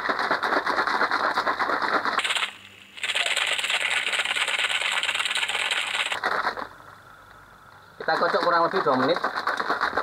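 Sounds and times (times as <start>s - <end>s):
ice rattling in shaker bottle: 2.1s - 6.2s.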